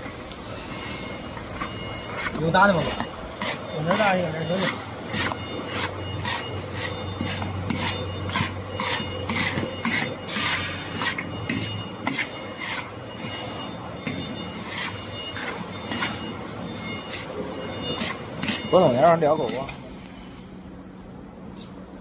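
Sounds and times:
metal spatulas scraping a wok: 0.7s - 18.7s.

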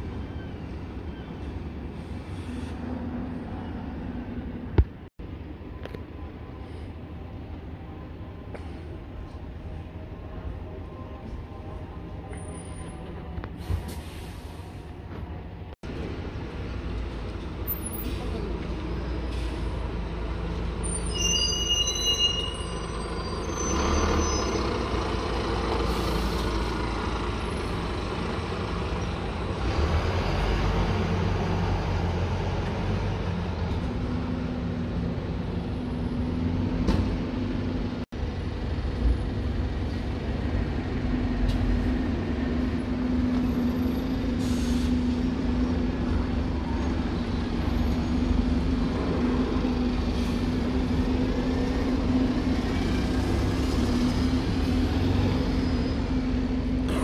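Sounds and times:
bus diesel engine rumble: 0.0s - 57.0s
air brake hisses: 13.6s - 14.8s, 44.4s - 45.0s
brief high squeal: 20.8s - 24.8s.

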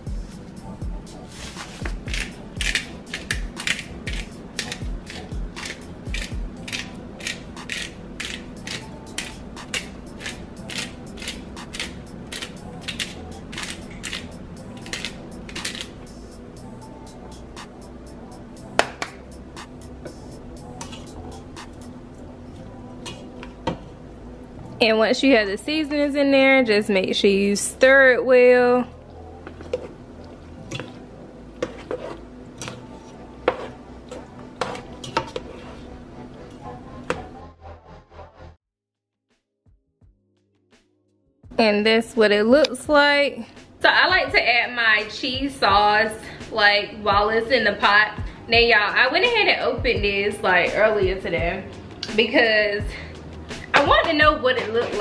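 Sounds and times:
spice grinder crunching: 2.0s - 16.0s
spoon stirring macaroni in pot: 31.6s - 35.9s.

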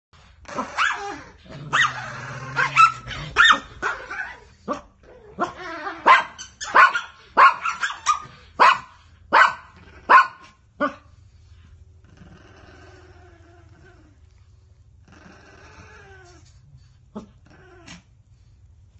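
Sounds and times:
dog barking sharply: 6.1s - 10.4s.

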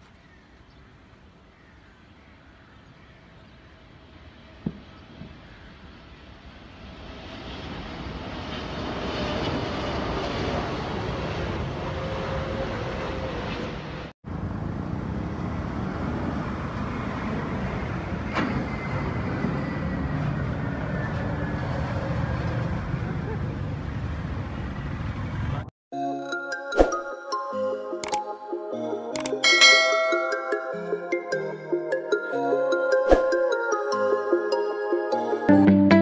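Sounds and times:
traffic noise: 0.0s - 25.7s
jet plane passing overhead: 3.6s - 25.7s.

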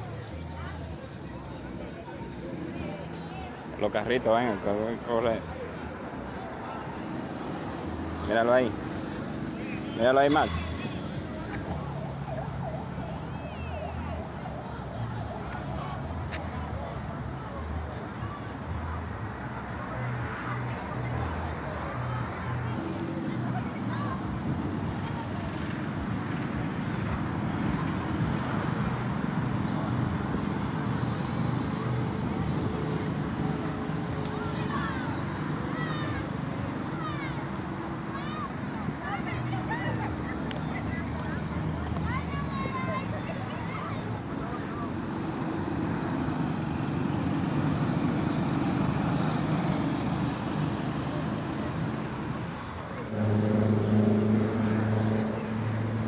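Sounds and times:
go-kart engines droning: 22.7s - 56.0s
loud steady engine note: 44.9s - 56.0s.

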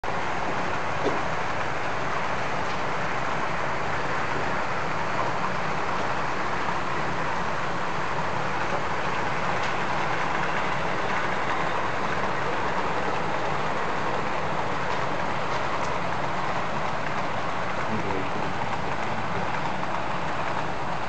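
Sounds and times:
model trains running: 0.0s - 21.0s.

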